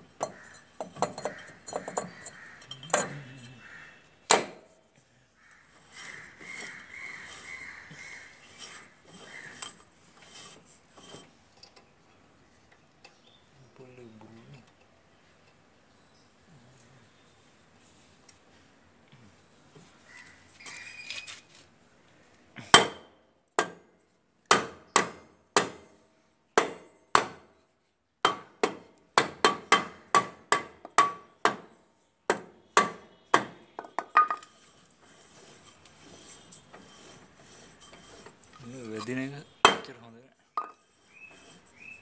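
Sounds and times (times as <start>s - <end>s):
wooden block knocking on brake drum: 28.2s - 31.7s, 39.6s - 39.9s.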